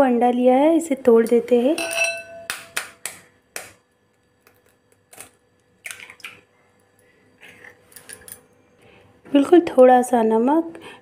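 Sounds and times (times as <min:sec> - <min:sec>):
egg tapping on glass bowl: 0:01.8 - 0:03.2
eggshell cracking: 0:02.4 - 0:06.4.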